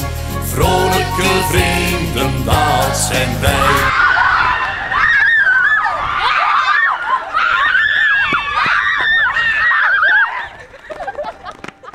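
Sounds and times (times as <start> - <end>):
girls shrieking and laughing: 3.6 - 11.6.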